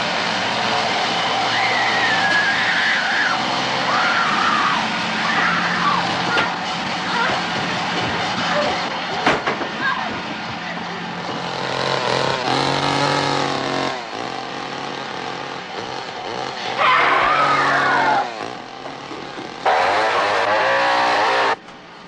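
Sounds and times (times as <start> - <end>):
chainsaw revving: 0.0 - 7.6, 11.2 - 21.6
chainsaw sawing through wood: 11.2 - 21.6.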